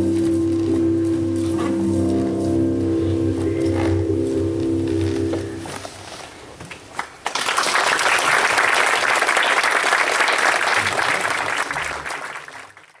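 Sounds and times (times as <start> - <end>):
music: 0.0 - 5.8
audience applauding: 7.0 - 13.0.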